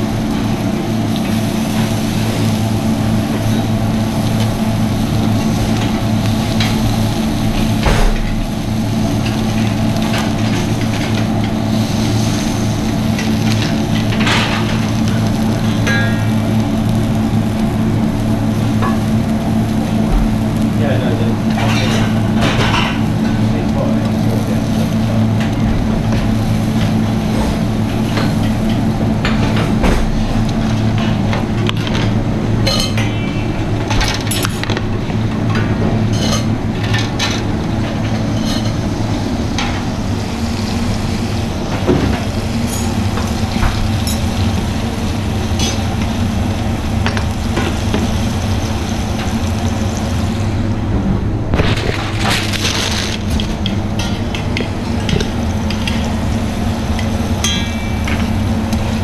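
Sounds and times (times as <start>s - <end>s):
food sizzling in pans: 0.0s - 31.6s, 38.2s - 50.7s
steady low hum: 0.0s - 59.0s
metal utensils clinking on pans: 21.5s - 23.0s.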